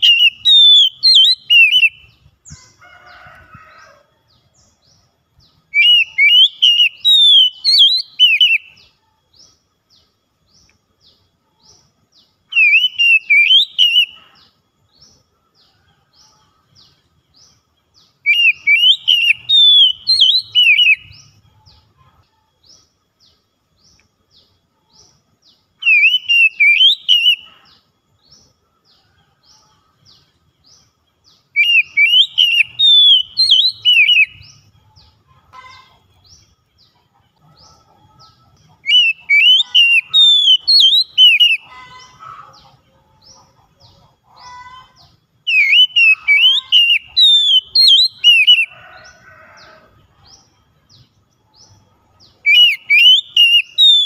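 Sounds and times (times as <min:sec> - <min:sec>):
bird song whistles: 0:00.0 - 0:02.6, 0:05.7 - 0:09.0, 0:12.5 - 0:14.2, 0:18.2 - 0:21.3, 0:25.8 - 0:27.5, 0:31.5 - 0:34.6, 0:38.8 - 0:41.7, 0:45.4 - 0:49.4, 0:52.4 - 0:54.0.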